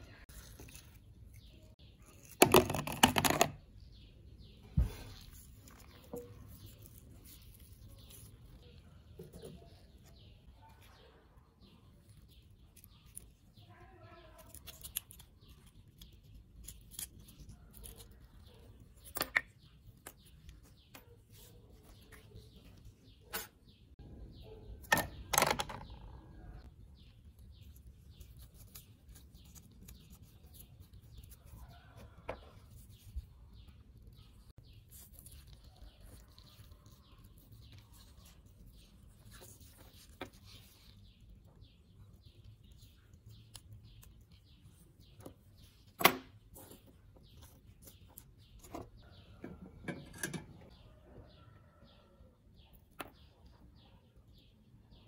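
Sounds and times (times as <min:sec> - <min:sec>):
birds chirping: 0:17.2 - 0:55.0.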